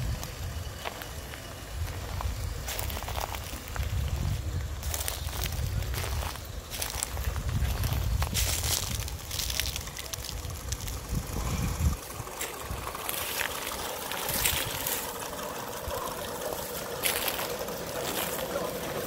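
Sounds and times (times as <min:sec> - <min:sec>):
low rumble: 0:00.0 - 0:15.2
soft locomotive exhaust: 0:00.0 - 0:19.0
steam hiss: 0:00.0 - 0:19.0.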